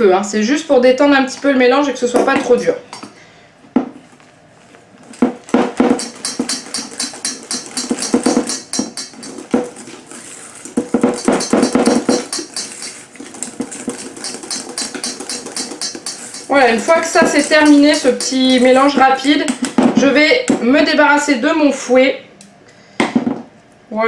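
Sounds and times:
whisk clicking against metal bowl: 0:06.0 - 0:09.9, 0:10.6 - 0:19.8.

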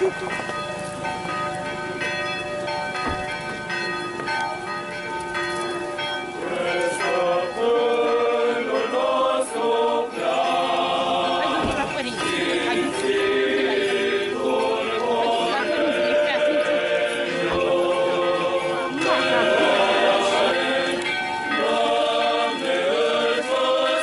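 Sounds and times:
church bells ringing: 0:00.0 - 0:24.0
choir singing a chant: 0:06.4 - 0:24.0.

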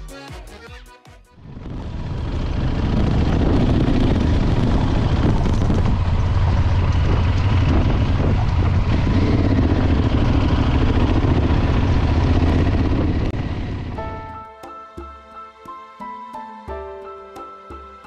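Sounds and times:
motorcycle engine running: 0:01.4 - 0:14.4
wind and road noise: 0:01.4 - 0:14.5.

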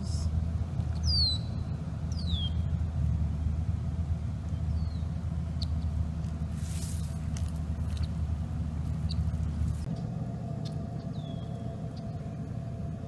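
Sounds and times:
low outdoor rumble: 0:00.0 - 0:13.0
bird whistle calls: 0:01.0 - 0:02.7, 0:10.6 - 0:12.2.

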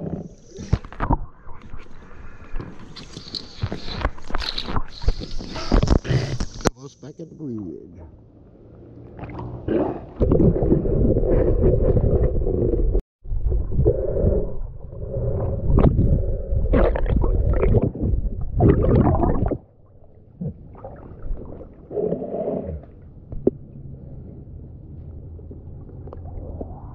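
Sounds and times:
muffled underwater rumbling and gurgling: 0:09.2 - 0:26.9.

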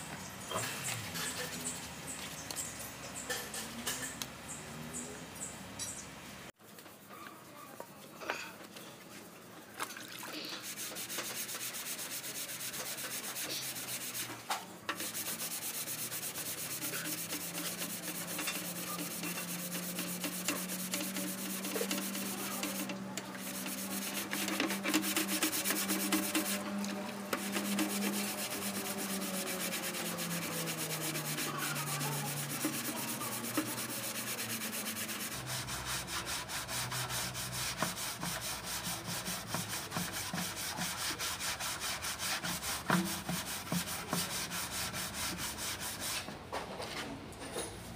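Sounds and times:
wet sanding strokes: 0:10.4 - 0:46.3.

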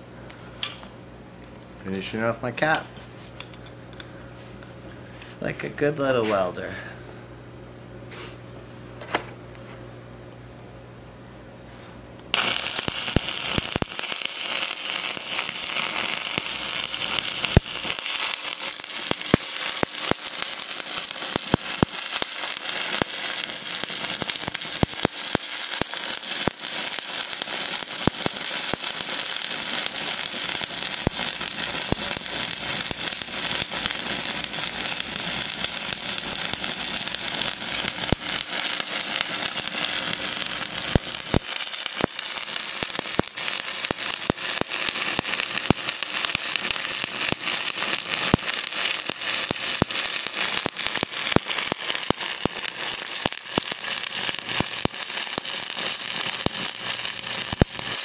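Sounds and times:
welding arc crackling and popping: 0:12.2 - 0:58.0.

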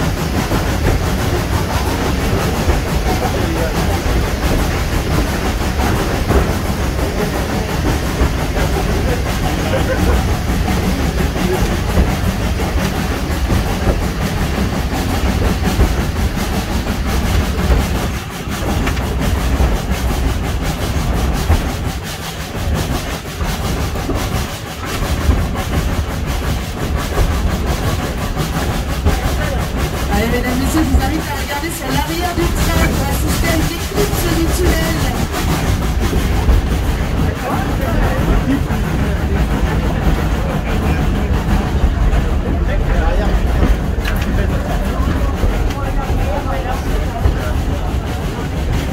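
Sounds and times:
steam locomotive working: 0:00.0 - 0:48.9
wheels clattering on rails: 0:00.0 - 0:48.9.

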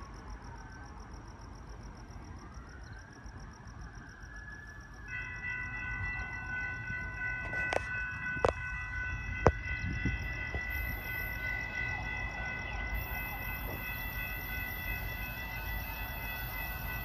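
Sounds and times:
railroad crossing bell ringing: 0:05.0 - 0:17.0.

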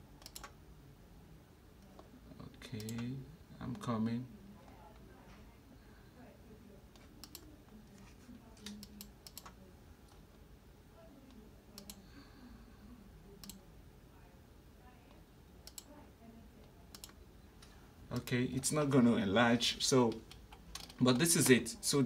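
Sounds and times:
faint room hum: 0:00.0 - 0:22.0
computer mouse clicks: 0:00.2 - 0:00.6, 0:06.9 - 0:07.5, 0:08.6 - 0:10.2, 0:11.8 - 0:12.0, 0:13.4 - 0:13.6, 0:15.6 - 0:15.9, 0:16.9 - 0:18.3, 0:20.1 - 0:21.0.

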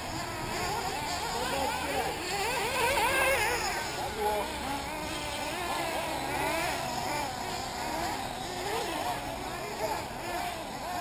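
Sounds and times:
small engines revving: 0:00.0 - 0:11.0.

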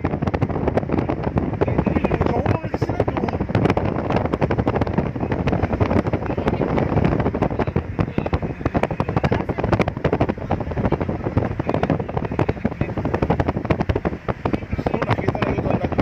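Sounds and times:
car driving rumble: 0:00.0 - 0:16.0
wind buffeting phone microphone: 0:00.0 - 0:16.0.

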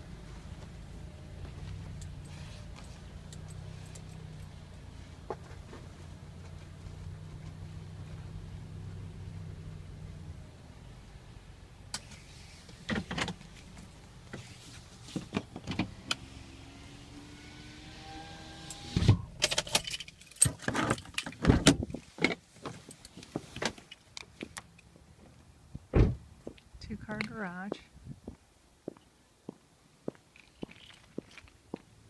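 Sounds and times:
faint whine rising in pitch: 0:15.8 - 0:19.4.

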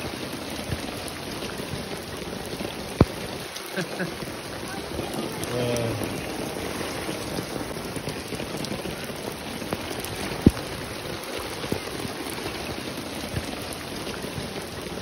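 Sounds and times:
rain falling steadily: 0:00.0 - 0:15.0.

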